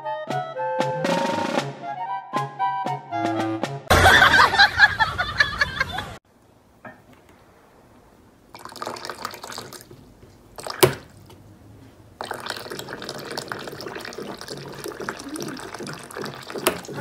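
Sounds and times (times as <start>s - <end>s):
water running from tap: 12.2s - 17.0s.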